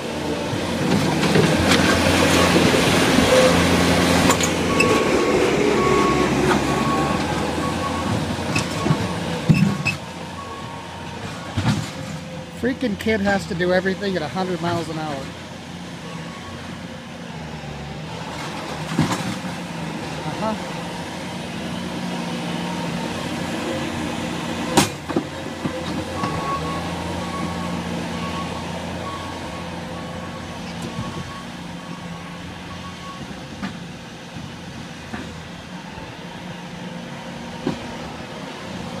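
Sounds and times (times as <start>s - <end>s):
loader engine running: 0.0s - 39.0s
backup alarm beeping: 4.7s - 5.2s, 5.8s - 11.0s.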